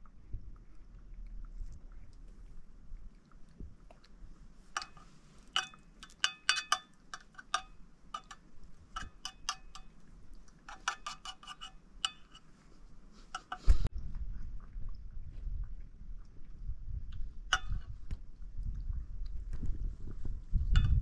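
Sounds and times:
spoon clinking on metal plate: 4.8 - 8.4, 9.0 - 10.0, 10.7 - 12.5.

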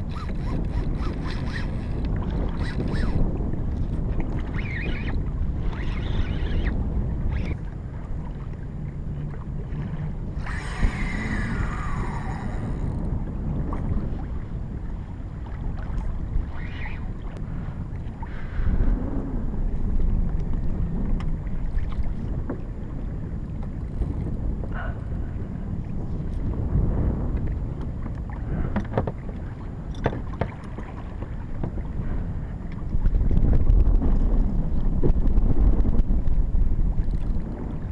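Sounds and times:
fishing reel drag buzzing: 0.0 - 3.3, 4.4 - 7.6, 10.3 - 13.1, 16.4 - 17.1
water lapping at a kayak: 0.0 - 37.9
wind buffeting microphone: 0.0 - 37.9.

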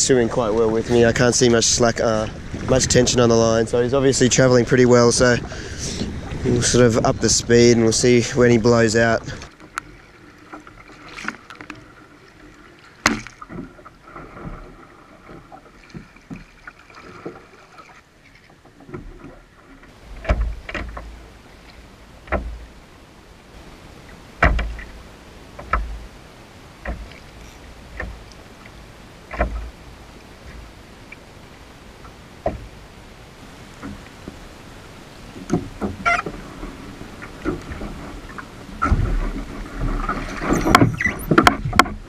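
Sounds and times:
paddle splashing: 0.0 - 42.0
water slapping plastic hull: 8.7 - 22.8, 24.4 - 26.1, 26.8 - 28.4, 29.3 - 29.8, 35.3 - 42.0.

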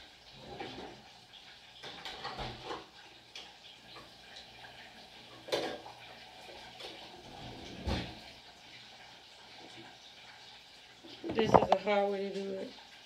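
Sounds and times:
dishes and utensils clattering: 1.8 - 4.1, 5.3 - 5.9, 11.2 - 12.0.

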